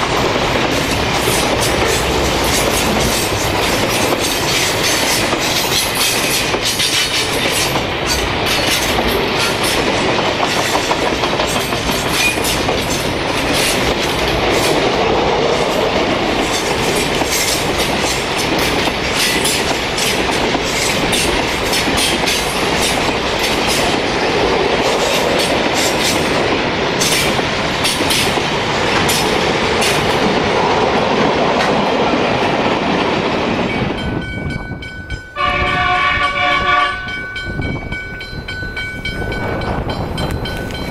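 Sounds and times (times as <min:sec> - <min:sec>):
wheels clattering over rail joints: 0:00.0 - 0:34.2
freight train rolling past: 0:00.0 - 0:40.9
train horn: 0:35.4 - 0:37.2.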